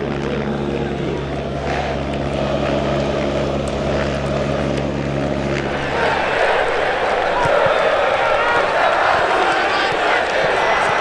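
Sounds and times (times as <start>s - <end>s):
low mechanical hum: 0.0s - 11.0s
even rushing noise: 5.0s - 10.3s.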